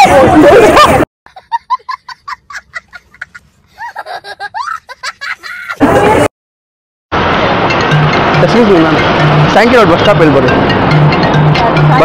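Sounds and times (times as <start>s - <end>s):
boy laughing: 0.6s - 6.3s
loud burst of noise: 7.1s - 11.3s.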